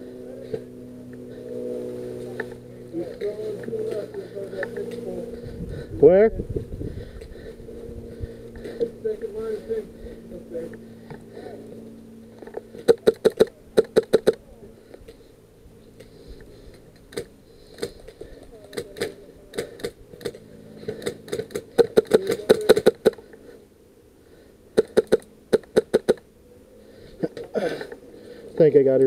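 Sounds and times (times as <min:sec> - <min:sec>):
airsoft rifle shots: 0:12.8 - 0:14.4, 0:18.7 - 0:23.2, 0:24.8 - 0:26.2.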